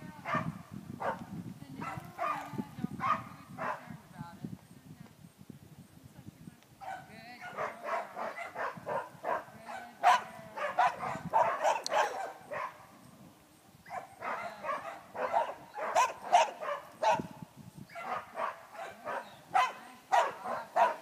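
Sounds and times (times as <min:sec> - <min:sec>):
dog barking: 0:00.2 - 0:03.9, 0:06.8 - 0:12.9, 0:13.9 - 0:17.3, 0:17.9 - 0:21.0.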